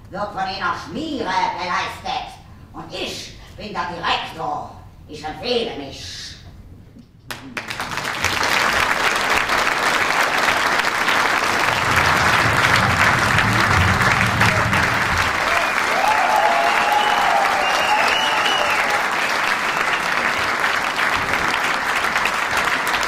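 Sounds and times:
audience applauding: 7.3s - 23.0s.

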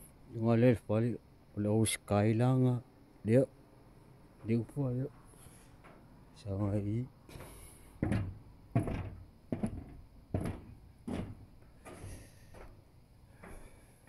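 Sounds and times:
footsteps on steps: 7.3s - 13.8s.

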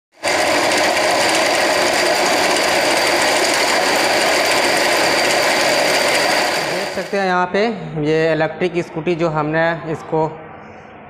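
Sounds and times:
electric motor whirring: 0.2s - 7.2s.

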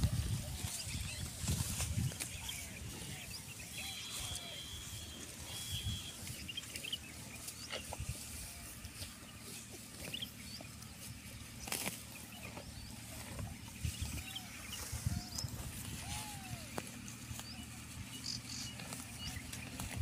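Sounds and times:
animal tearing and chewing grass: 9.7s - 13.9s, 18.4s - 20.0s.

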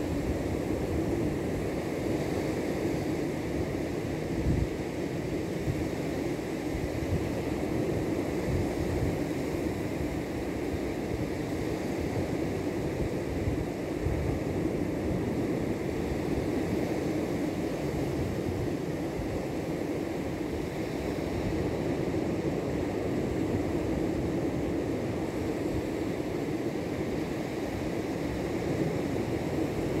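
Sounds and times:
wind rumbling on microphone: 0.0s - 30.0s.

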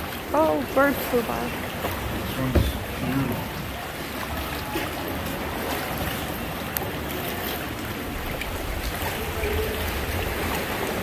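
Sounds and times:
water lapping around kayak: 0.0s - 11.0s
faint knocks: 2.4s - 3.1s.

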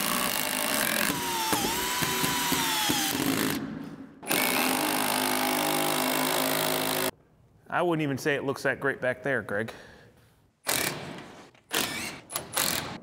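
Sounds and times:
cordless drill driving screw: 0.0s - 3.6s, 11.7s - 12.9s.

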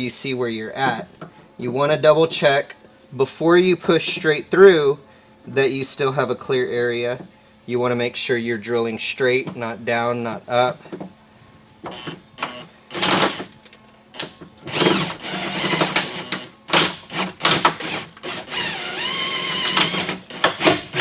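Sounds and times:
cordless drill drilling plastic: 14.7s - 16.2s, 17.8s - 21.0s.

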